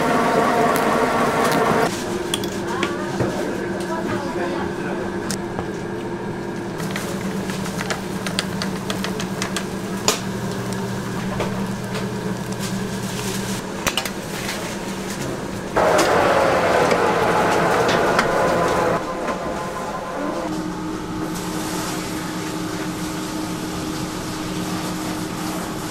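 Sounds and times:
rushing noise with falling tone: 0:15.8 - 0:21.5
low hum: 0:15.8 - 0:22.8.

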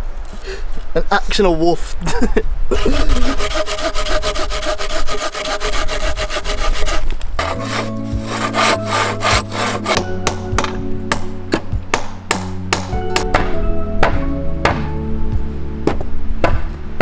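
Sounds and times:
hand saw cutting log: 0:02.7 - 0:10.1
music with held notes: 0:07.4 - 0:17.0.

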